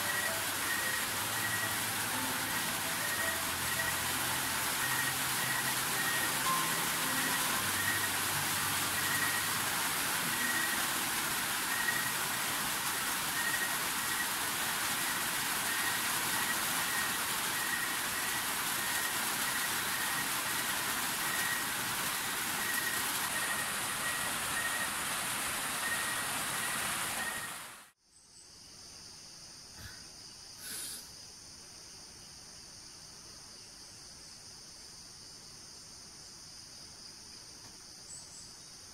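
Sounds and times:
heavy rain pouring: 0.0 - 27.9.

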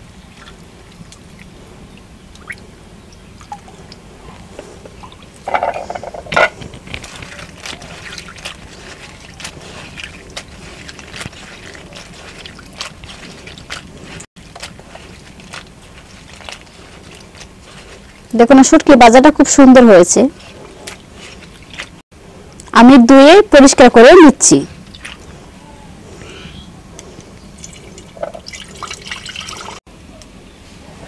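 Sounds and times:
hands washing fish in water: 0.0 - 22.0, 24.0 - 26.4, 27.0 - 29.8
water ladled into bowl: 3.4 - 18.3, 24.8 - 25.3, 27.6 - 29.8.

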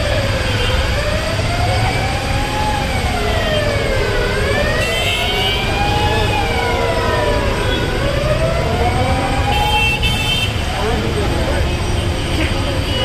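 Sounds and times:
siren wailing: 0.0 - 10.0
street traffic rumble: 0.0 - 13.0.

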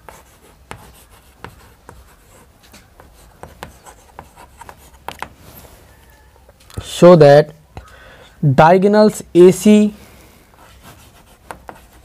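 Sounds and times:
chalk writing on chalkboard: 0.0 - 5.5, 10.5 - 12.0.

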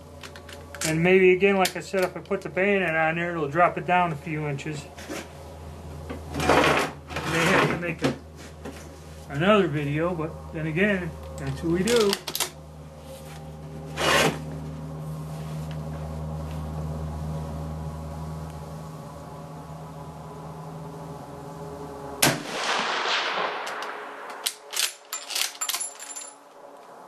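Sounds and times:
rifle shot: 22.2 - 24.8.

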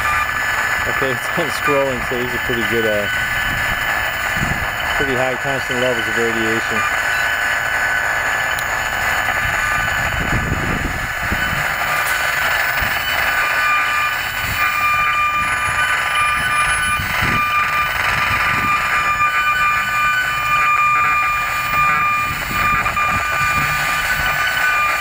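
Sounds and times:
thin whining tones: 11.3 - 25.0.

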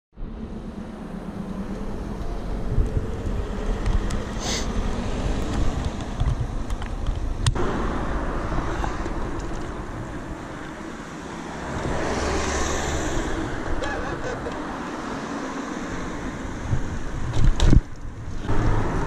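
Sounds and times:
road traffic: 0.1 - 19.0
wind rushing over microphone: 0.2 - 19.0
bicycle rolling on asphalt: 0.3 - 13.8, 14.4 - 19.0.

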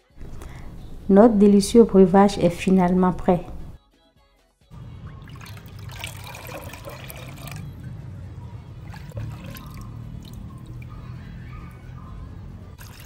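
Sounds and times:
liquid splashing and trickling: 4.8 - 7.7, 8.8 - 11.4, 12.8 - 13.0.

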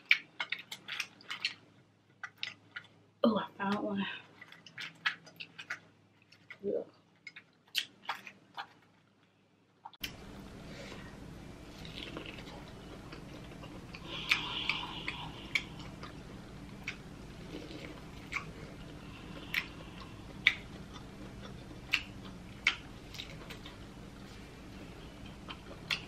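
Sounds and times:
biting and chewing corn: 0.0 - 3.0, 4.3 - 9.1.

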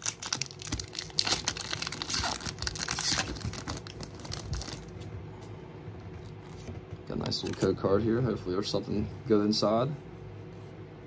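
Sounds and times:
foil wrapper tearing and crinkling: 0.0 - 4.9.

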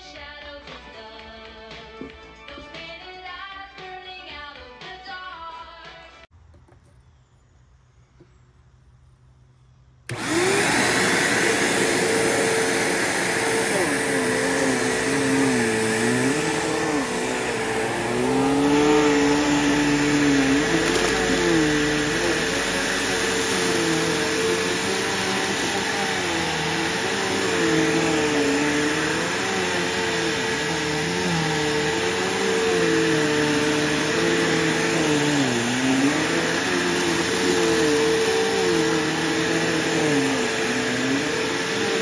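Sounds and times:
vacuum cleaner humming: 10.1 - 42.0.

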